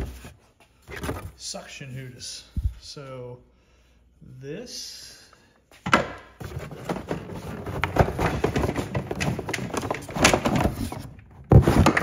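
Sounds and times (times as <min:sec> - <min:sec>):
knocks and thumps: 0:05.8 - 0:12.0.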